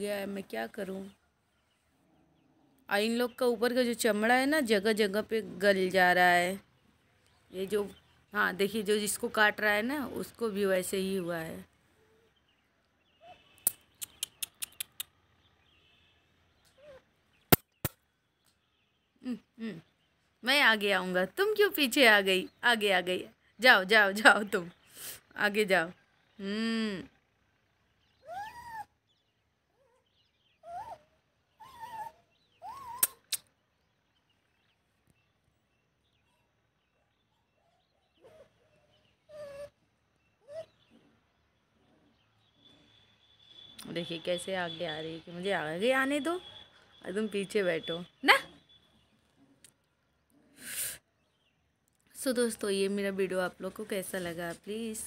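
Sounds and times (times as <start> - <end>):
sharp clicks: 13.6 - 15.1
faint puppy whimpers: 16.7 - 17.1, 28.1 - 29.0, 29.7 - 33.4, 37.3 - 42.2
puppies yelping: 28.2 - 29.0, 31.6 - 33.2.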